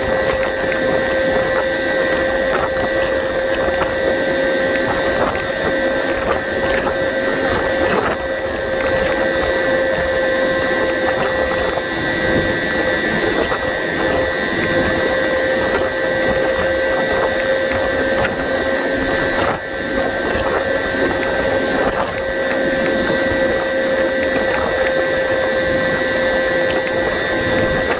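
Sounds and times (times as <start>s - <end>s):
high constant whining tones: 0.0s - 27.9s
wind turbine machinery drone: 0.0s - 27.9s.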